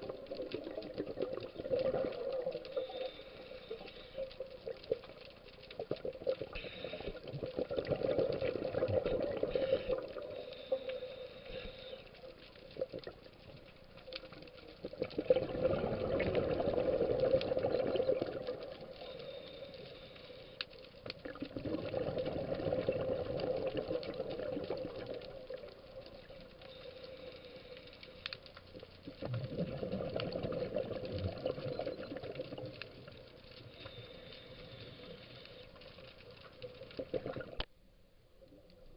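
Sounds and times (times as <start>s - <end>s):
exhaled bubbles underwater: 0.0s - 11.0s, 14.3s - 19.3s, 21.1s - 26.7s, 28.7s - 35.2s, 36.0s - 37.7s
hissing regulator inhalations: 2.7s - 4.3s, 6.5s - 7.4s, 9.4s - 12.3s, 19.0s - 20.8s, 33.7s - 36.0s.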